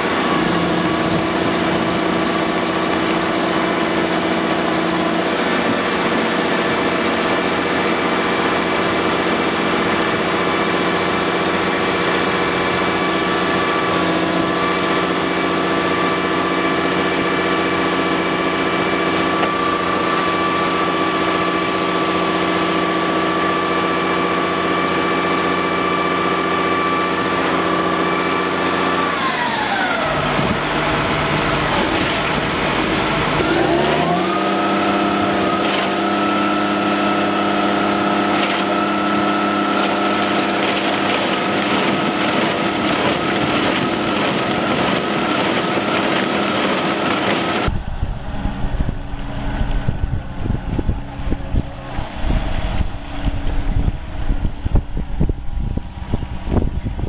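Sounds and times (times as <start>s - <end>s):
wind buffeting microphone: 0.0s - 24.3s, 38.7s - 57.0s
diesel tractor engine running: 0.0s - 57.0s
excavator engine: 0.0s - 57.0s.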